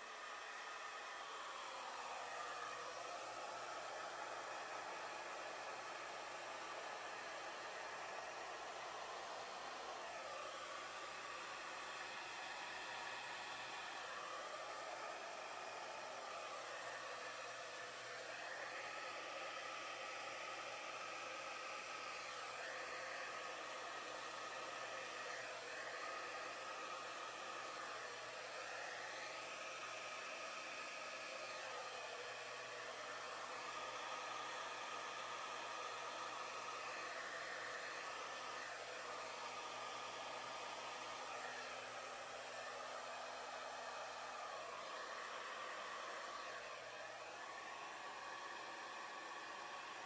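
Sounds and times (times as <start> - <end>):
hair dryer running: 0.0 - 50.0.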